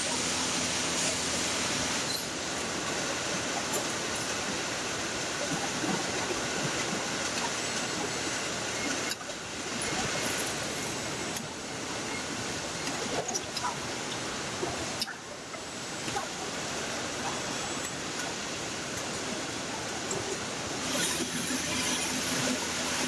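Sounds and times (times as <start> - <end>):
assembly line machinery din: 20.7 - 23.0.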